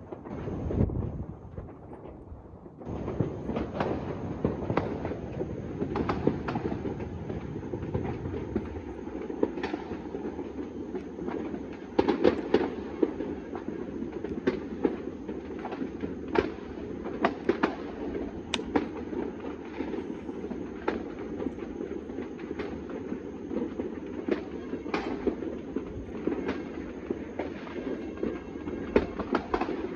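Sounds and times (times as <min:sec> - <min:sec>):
distant fireworks crackling: 0:00.0 - 0:29.9
sharp firework bangs: 0:02.8 - 0:08.7.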